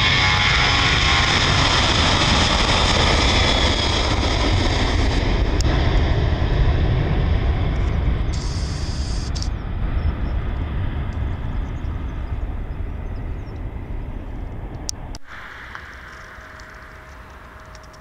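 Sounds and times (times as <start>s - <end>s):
jet airliner rumble: 0.0s - 18.0s
ambient noise: 7.8s - 18.0s.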